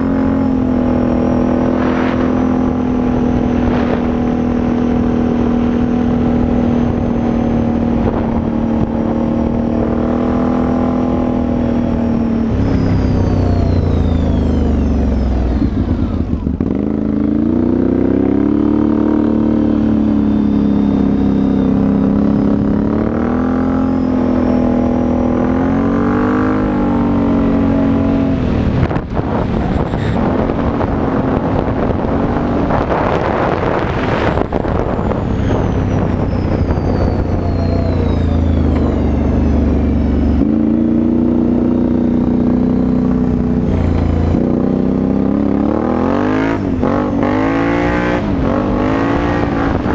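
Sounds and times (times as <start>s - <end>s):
quad engine running: 0.0s - 49.9s
rushing noise: 1.1s - 5.9s.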